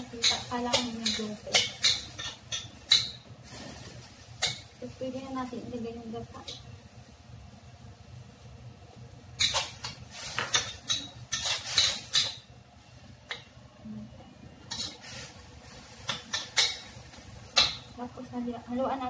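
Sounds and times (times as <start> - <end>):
metal spatula scraping a wok: 0.0 - 4.8, 9.4 - 12.5, 14.7 - 17.7.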